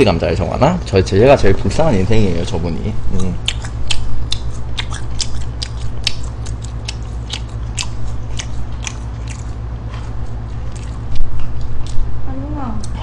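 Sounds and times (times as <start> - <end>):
steady low hum: 0.0 - 13.0
crunchy chewing: 3.1 - 12.1.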